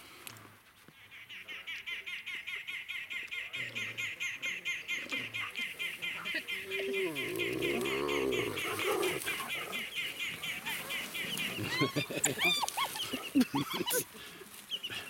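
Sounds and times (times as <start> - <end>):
hyena giggling: 4.9 - 14.2.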